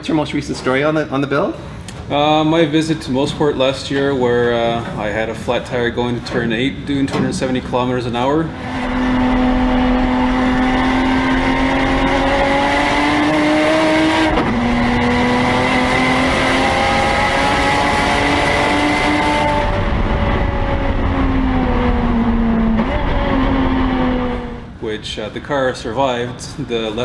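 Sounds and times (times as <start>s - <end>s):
race car engine revving: 8.0s - 24.8s.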